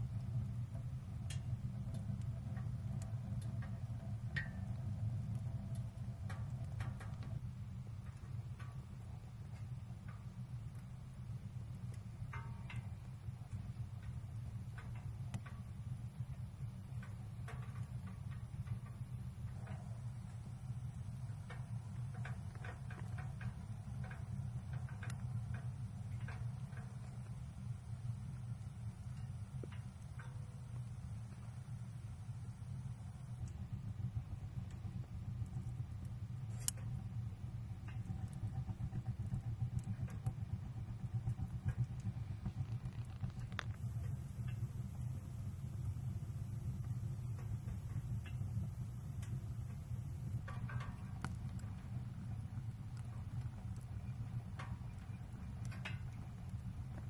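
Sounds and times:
low fire rumble: 0:00.0 - 0:57.0
wood fire crackling: 0:00.0 - 0:57.0.

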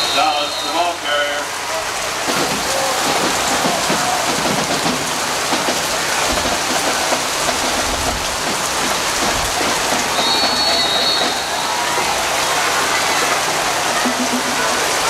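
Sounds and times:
referee's whistle: 0:00.0 - 0:01.1, 0:10.1 - 0:12.2
rain falling: 0:00.0 - 0:15.0.

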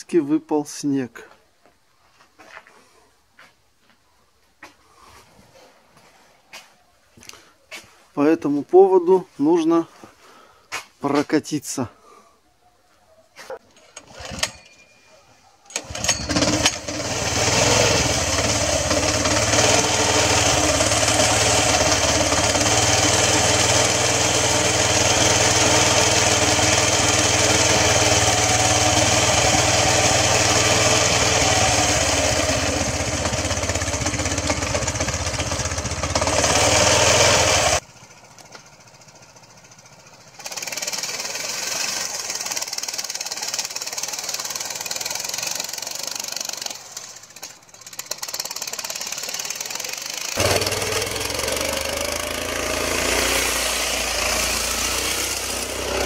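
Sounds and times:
faint motorcycle riding through snow: 0:15.7 - 0:56.0
motorcycle engine chugging: 0:15.8 - 0:56.0.

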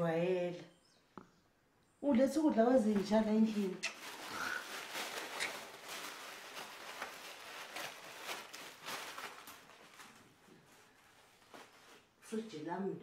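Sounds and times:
plastic bags crinkling: 0:03.4 - 0:12.2.

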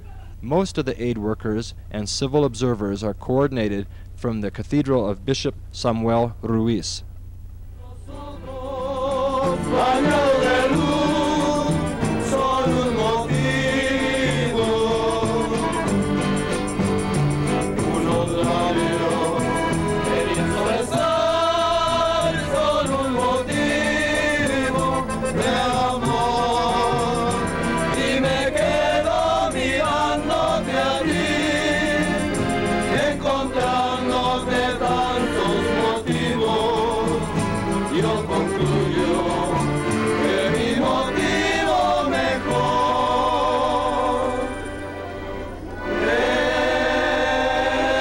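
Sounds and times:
congregation singing a hymn: 0:07.8 - 0:48.0.

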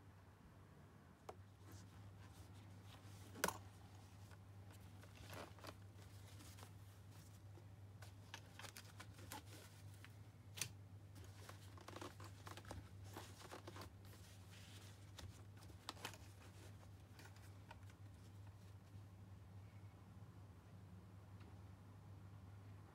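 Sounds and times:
fabric rustling: 0:01.5 - 0:10.3, 0:11.1 - 0:19.0.

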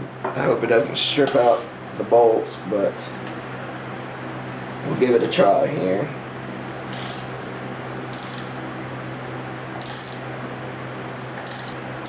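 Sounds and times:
socket ratchet clicking: 0:08.2 - 0:08.6, 0:09.8 - 0:10.2, 0:11.4 - 0:11.8.

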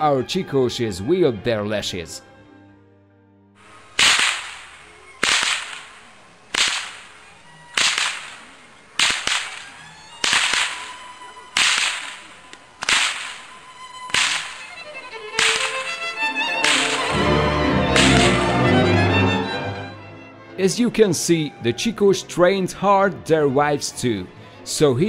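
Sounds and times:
whips cracking: 0:03.7 - 0:18.7.

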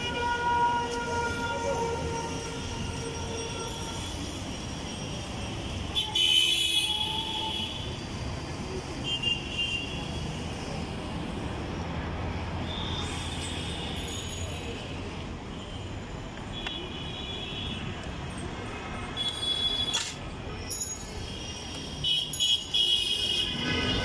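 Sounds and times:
busy street traffic: 0:00.0 - 0:24.0.

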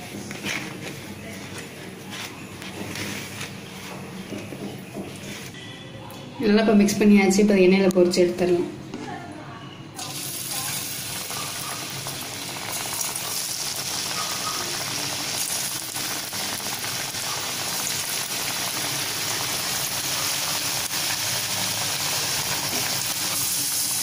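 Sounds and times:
oil sizzling while deep-frying: 0:10.0 - 0:24.0.

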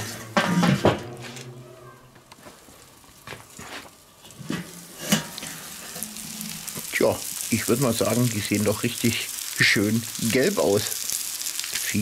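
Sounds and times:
grill lid clattering down: 0:00.0 - 0:02.3, 0:04.2 - 0:06.9
burgers sizzling: 0:00.0 - 0:12.0.

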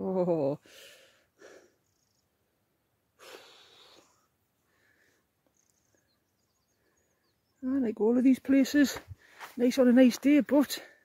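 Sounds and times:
faint high chirps: 0:01.8 - 0:02.4, 0:05.4 - 0:07.7
short breath: 0:03.2 - 0:05.3.

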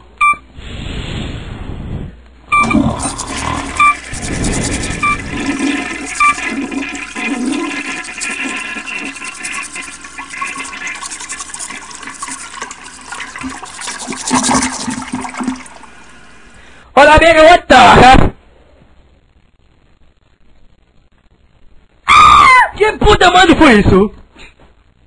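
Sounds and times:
short electronic beeps: 0:00.2 - 0:00.4, 0:02.5 - 0:03.0, 0:03.7 - 0:04.0, 0:04.9 - 0:05.3
toilet flushing: 0:02.7 - 0:16.6.

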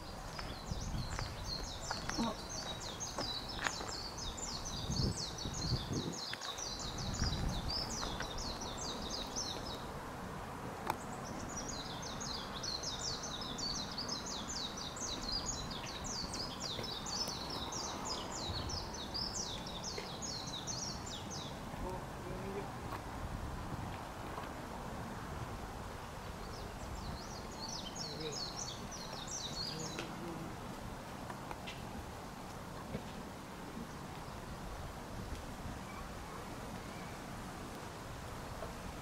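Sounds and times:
songbird twittering: 0:00.0 - 0:09.9, 0:26.4 - 0:30.4.

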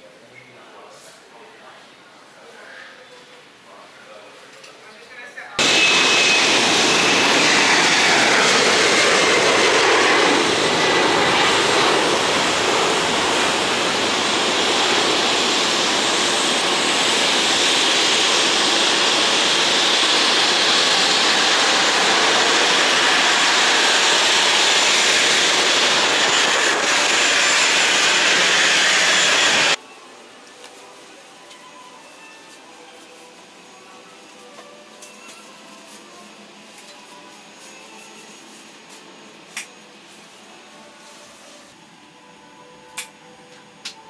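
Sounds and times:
jet airliner noise: 0:05.6 - 0:29.8.

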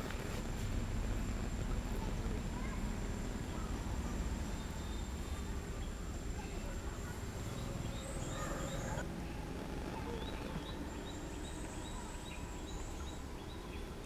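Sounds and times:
bird chirping: 0:03.4 - 0:09.0, 0:10.0 - 0:14.0.

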